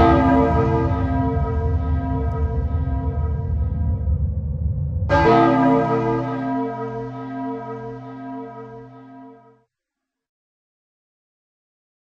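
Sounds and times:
deep tower bell ringing: 0:00.0 - 0:03.8, 0:05.1 - 0:09.5
low rumble: 0:00.0 - 0:08.2.

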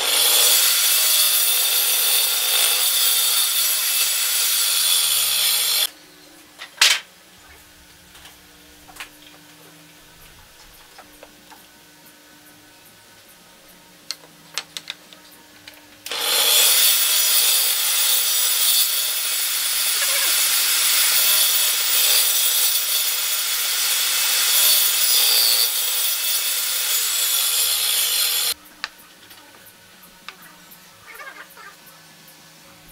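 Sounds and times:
table saw cutting wood: 0:00.0 - 0:05.9, 0:16.1 - 0:28.6.

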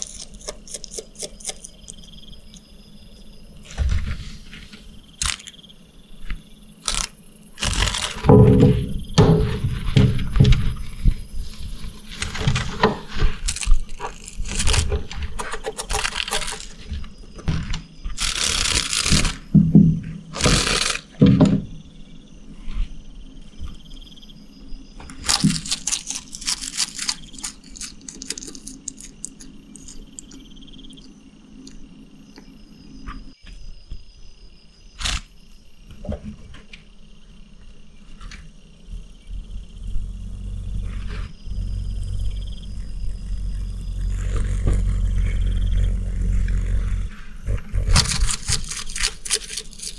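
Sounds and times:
lizard chewing insect crunching: 0:00.0 - 0:02.6, 0:25.2 - 0:31.8, 0:47.8 - 0:49.9.

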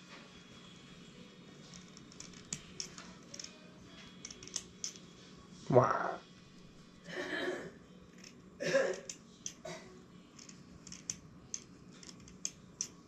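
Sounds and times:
short vocal sound: 0:05.7 - 0:06.2.

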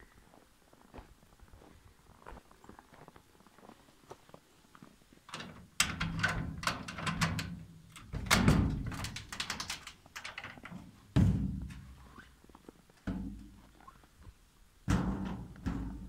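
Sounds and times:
footsteps crunching in snow: 0:00.2 - 0:05.0.

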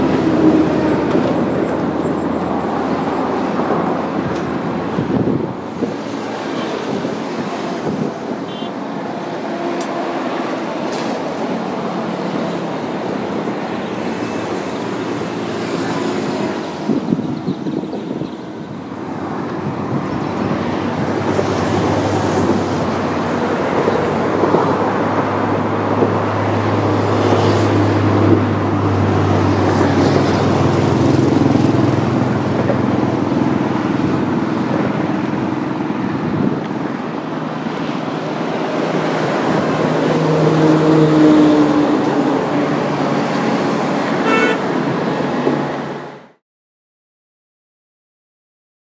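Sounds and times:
road traffic: 0:00.0 - 0:46.4
car horns: 0:08.4 - 0:08.9, 0:44.1 - 0:44.8.

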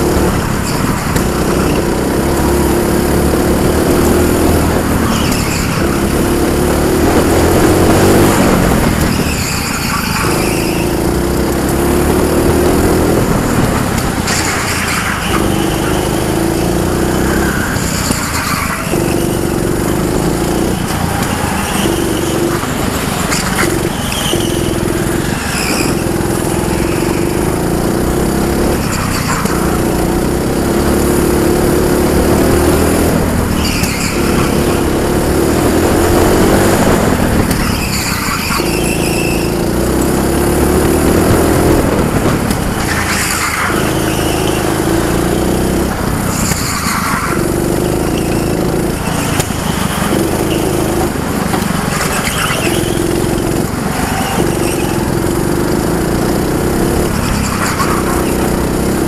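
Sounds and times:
go-kart engine running hard: 0:00.0 - 0:59.0
short high squeals: 0:07.2 - 0:11.3, 0:13.1 - 0:29.9, 0:33.4 - 0:35.2, 0:36.3 - 0:39.7, 0:51.6 - 0:55.3.

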